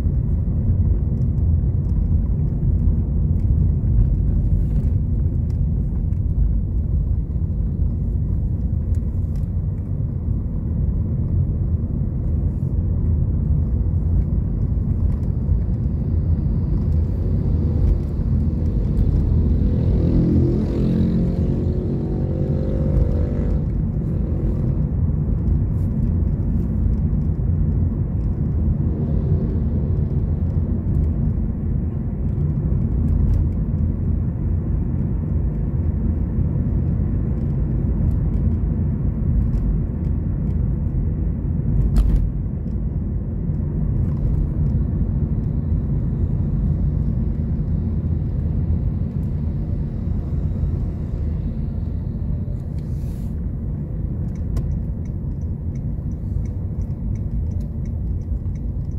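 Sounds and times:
car interior road rumble: 0.0s - 58.9s
passing vehicle engine: 15.8s - 26.9s.

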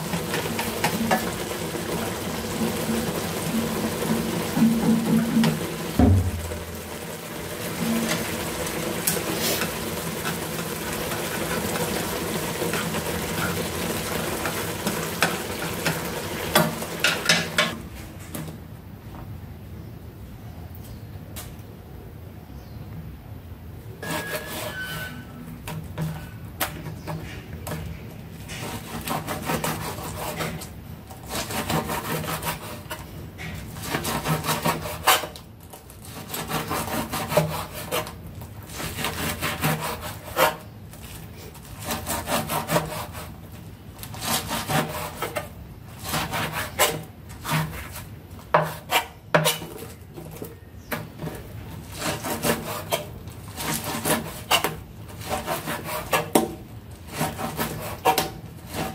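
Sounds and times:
knife knocking on cutting board: 6.0s - 6.5s
knife sawing through meat: 28.6s - 30.6s, 31.3s - 32.9s, 33.8s - 35.3s, 36.0s - 38.1s, 38.7s - 40.6s, 41.7s - 43.4s, 44.1s - 45.3s, 46.0s - 48.1s, 51.9s - 56.3s, 57.0s - 58.9s.

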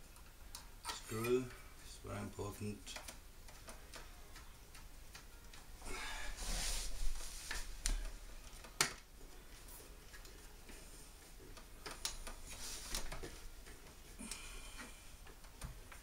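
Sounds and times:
scraping and rustling: 6.3s - 8.2s, 12.3s - 14.0s.

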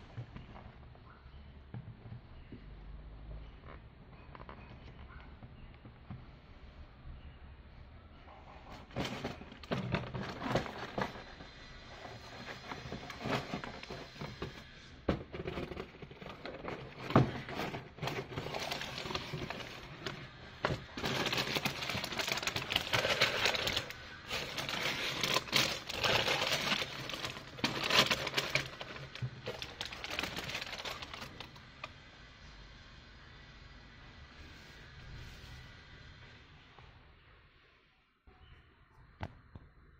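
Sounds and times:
plastic bag crinkling: 15.4s - 31.7s.

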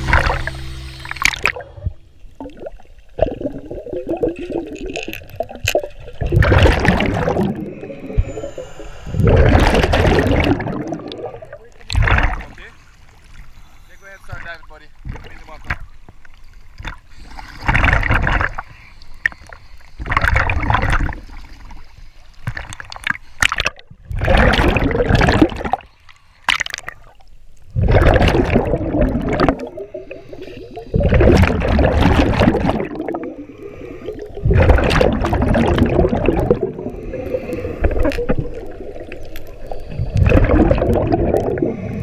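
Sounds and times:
diver exhaling bubbles underwater: 1.2s - 12.6s, 17.3s - 18.7s, 20.0s - 21.6s, 23.4s - 25.8s, 27.7s - 42.0s.

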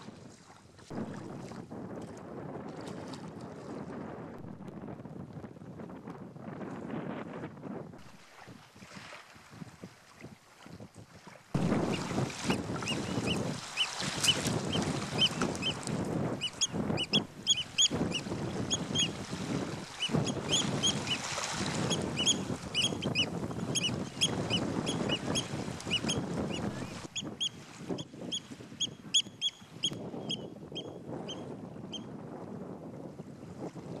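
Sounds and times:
wind rumbling on microphone: 0.0s - 34.0s
birds piping: 11.6s - 15.8s, 16.4s - 19.1s, 22.2s - 27.4s.

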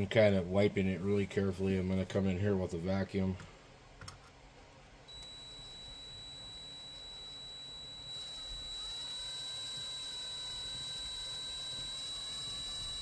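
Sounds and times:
electric motor whining: 5.1s - 13.0s.

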